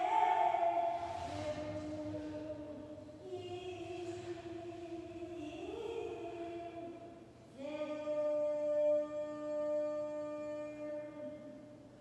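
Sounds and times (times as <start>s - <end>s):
person singing long held notes: 0.0s - 6.8s.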